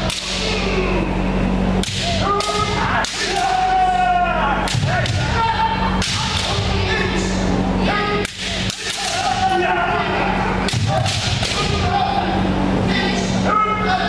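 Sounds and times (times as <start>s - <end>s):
bamboo swords cracking: 0.0s - 0.4s, 1.8s - 3.7s, 4.6s - 5.3s, 6.0s - 6.6s, 8.2s - 9.4s, 10.6s - 11.6s
people shouting: 0.0s - 14.0s.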